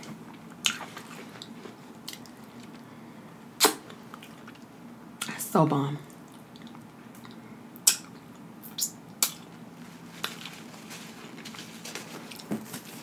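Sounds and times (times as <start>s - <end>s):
faint room hum: 0.0s - 13.0s
wet mouth smacks: 3.6s - 4.7s, 6.3s - 9.5s.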